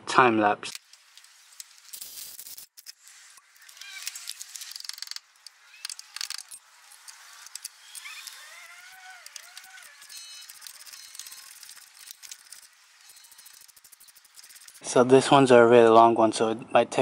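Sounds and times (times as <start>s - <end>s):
socket ratchet clicking: 3.8s - 14.8s.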